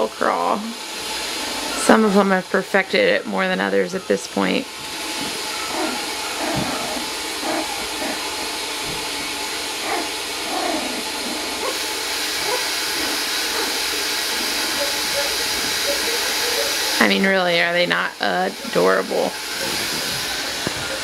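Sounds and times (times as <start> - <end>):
loud steady hiss: 0.0 - 21.0
puppies whimpering and squeaking: 3.1 - 9.1, 9.8 - 11.8, 12.4 - 13.7, 14.4 - 17.2.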